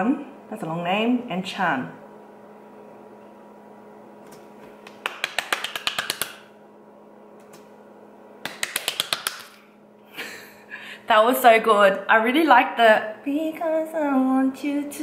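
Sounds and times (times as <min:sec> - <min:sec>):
low room hum: 0:00.0 - 0:15.0
rapid sharp taps: 0:04.8 - 0:06.4, 0:08.4 - 0:09.5.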